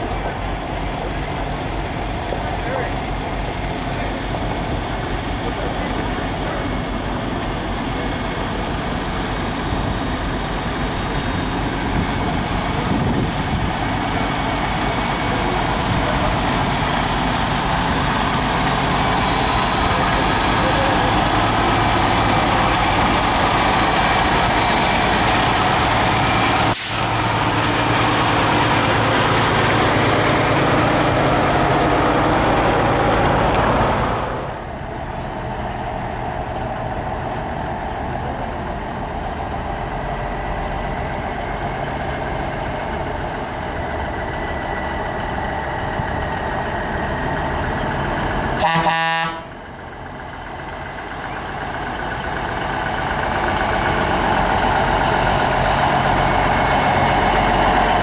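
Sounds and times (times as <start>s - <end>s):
truck diesel engines passing: 0.0s - 58.0s
short air hiss: 26.7s - 27.2s
truck horn toot: 48.6s - 49.5s.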